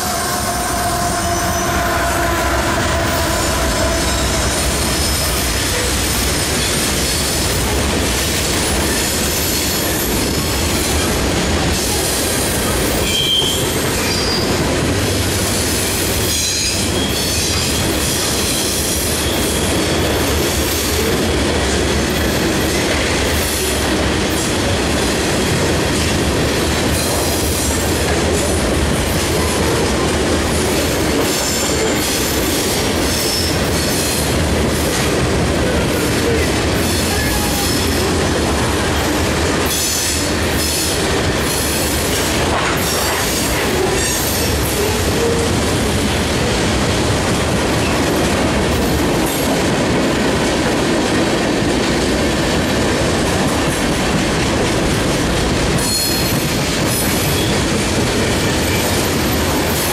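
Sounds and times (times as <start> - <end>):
train wheels clacking over rail joints: 2.8 - 59.9
train wheels squealing: 12.9 - 14.6, 15.6 - 21.0, 55.8 - 57.6.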